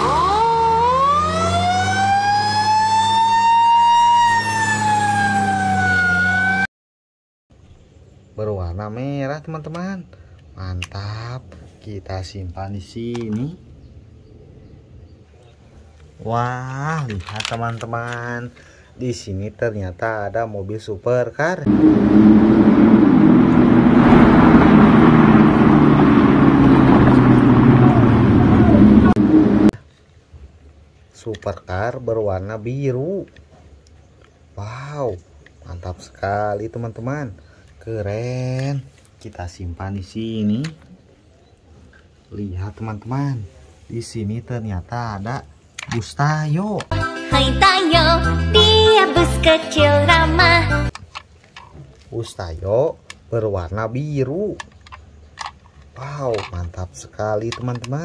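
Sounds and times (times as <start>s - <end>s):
fire truck siren wailing: 0.0s - 6.7s, 21.7s - 29.8s
low engine hum: 21.7s - 29.8s.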